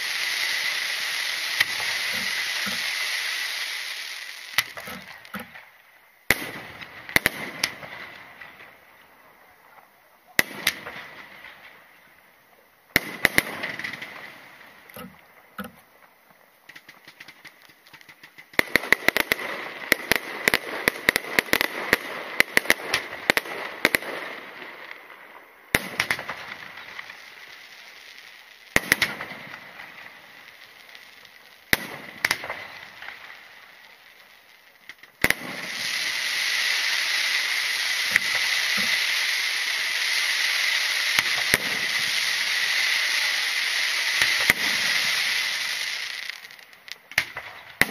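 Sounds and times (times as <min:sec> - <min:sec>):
firework hissing: 0:00.0 - 0:08.5, 0:35.1 - 0:47.9
firework shells bursting: 0:00.0 - 0:08.7, 0:16.6 - 0:24.1, 0:34.8 - 0:47.9
firework crackling: 0:00.0 - 0:09.5, 0:10.3 - 0:47.9.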